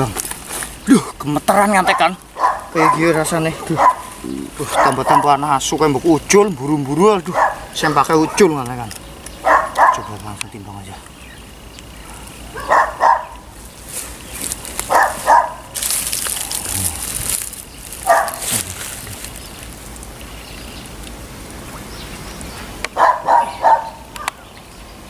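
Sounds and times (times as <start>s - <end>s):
dog barking: 1.8s - 5.4s, 7.3s - 8.6s, 9.4s - 10.1s, 12.0s - 13.5s, 14.9s - 15.8s, 18.0s - 18.5s, 23.0s - 24.4s
rustling: 13.6s - 20.2s.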